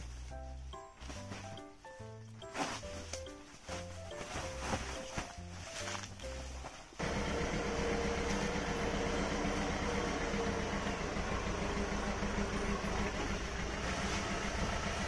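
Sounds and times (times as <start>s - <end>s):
small engine running: 7.0s - 15.0s.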